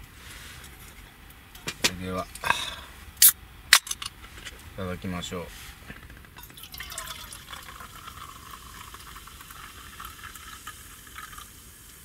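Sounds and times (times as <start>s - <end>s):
fizzy drink pouring into metal mug: 6.4s - 12.0s.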